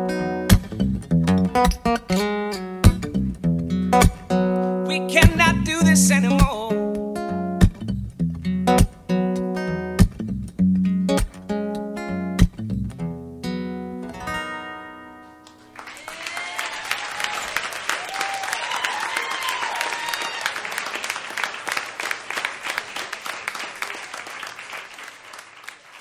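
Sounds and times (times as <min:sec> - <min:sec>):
acoustic guitar chord ringing: 0:03.6 - 0:07.6, 0:13.0 - 0:15.8
audience applause and cheering: 0:15.7 - 0:26.0
audience whoops: 0:15.8 - 0:21.4.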